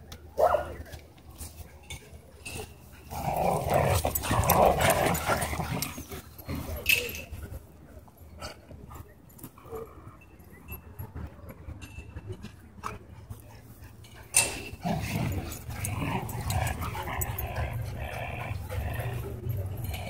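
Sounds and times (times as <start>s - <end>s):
dogs growling: 2.9s - 6.8s, 14.4s - 20.0s.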